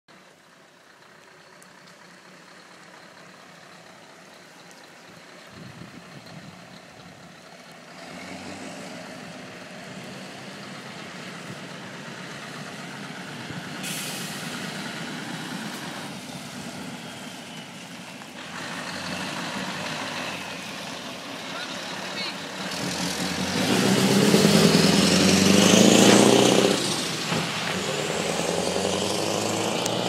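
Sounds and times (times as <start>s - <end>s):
truck diesel engine running: 0.1s - 8.0s, 8.9s - 30.0s
loud hiss: 13.8s - 14.9s.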